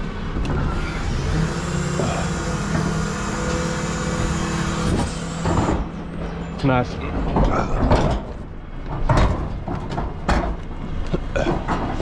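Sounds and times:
garbage truck engine running: 0.0s - 12.0s.

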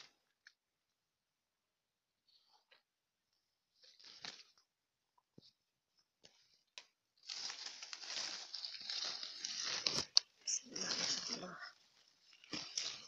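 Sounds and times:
leaves and twigs rustling: 7.2s - 13.0s.

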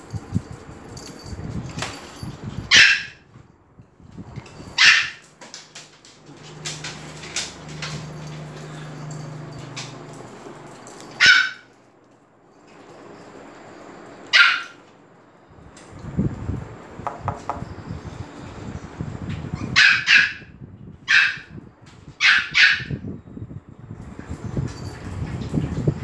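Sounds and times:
small dogs yapping: 2.7s - 3.2s, 4.8s - 5.2s, 11.1s - 11.7s, 14.3s - 14.9s, 19.6s - 20.5s, 21.1s - 21.5s, 22.2s - 23.0s
dogs scuffling in a bed: 4.4s - 11.2s.

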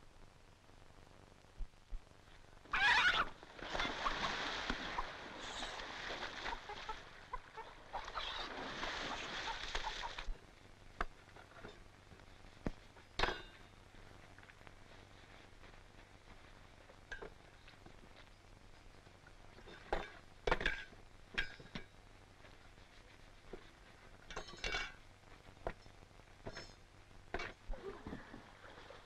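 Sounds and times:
chicken squawking: 2.7s - 4.3s, 6.5s - 8.5s
person wading through water: 3.3s - 10.4s.

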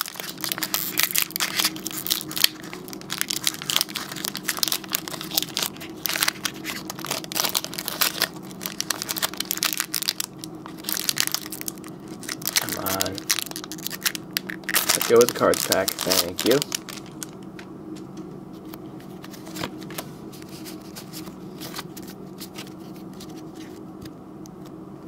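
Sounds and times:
foil wrapper crinkling: 0.0s - 17.6s.

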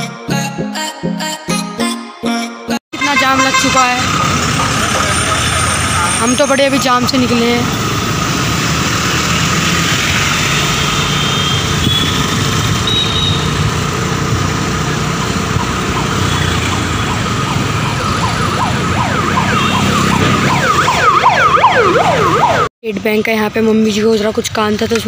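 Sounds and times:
wailing siren: 3.0s - 9.3s, 14.8s - 22.7s
scooter engine: 3.0s - 22.6s
road and wind noise: 3.0s - 25.0s.

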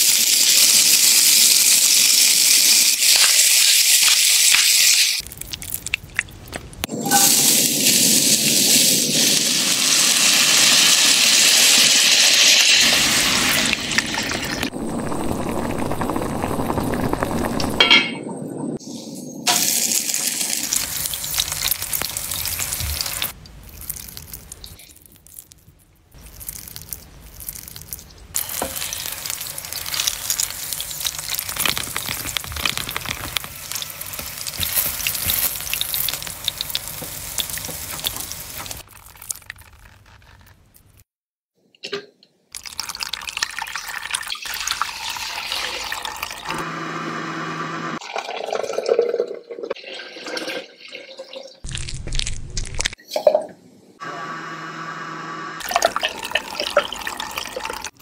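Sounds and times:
food sizzling on flat pan: 0.0s - 5.2s, 7.0s - 14.7s, 28.4s - 38.8s.

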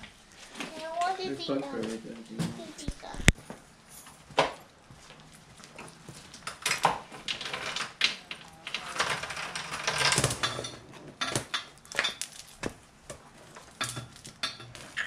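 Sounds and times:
metal chain links rattling: 6.4s - 12.4s.

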